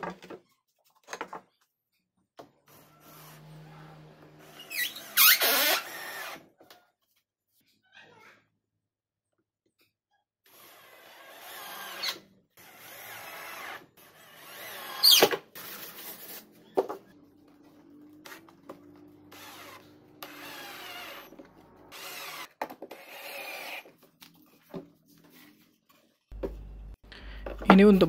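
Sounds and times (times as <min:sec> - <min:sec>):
drill driving screws into wood: 0:04.4 - 0:06.5, 0:10.5 - 0:15.4, 0:19.3 - 0:23.9.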